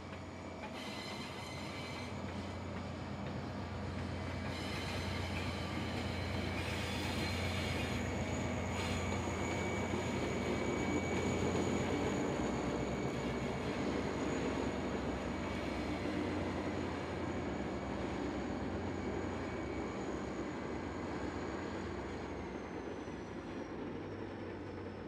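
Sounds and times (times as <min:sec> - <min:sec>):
thin high whine: 0:00.0 - 0:23.3
train wheels running on rails: 0:00.0 - 0:25.0.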